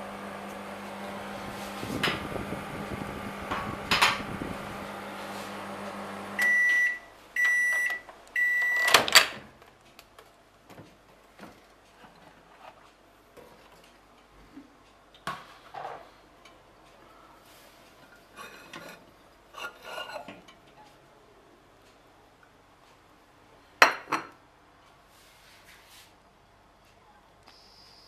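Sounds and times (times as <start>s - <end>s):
microwave oven humming: 0.0s - 9.4s
microwave long beeps: 6.2s - 9.0s.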